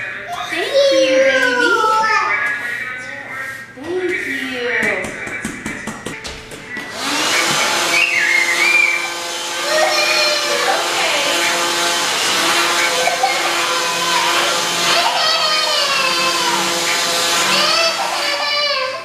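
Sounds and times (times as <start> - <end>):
vacuum cleaner humming: 6.7 - 19.0.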